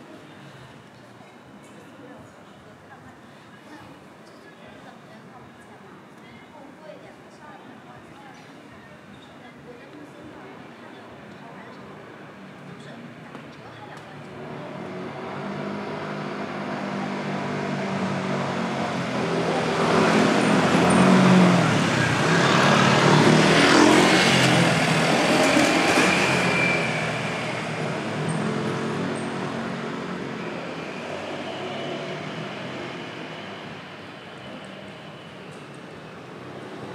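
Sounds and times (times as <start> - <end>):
vehicle engine passing by: 14.7 - 34.2.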